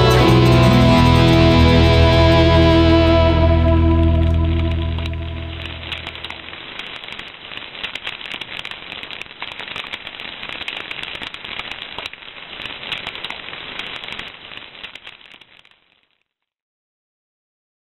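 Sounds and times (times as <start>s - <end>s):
dense crackling pops and clicks: 0.0s - 16.4s
hiss: 5.6s - 15.5s.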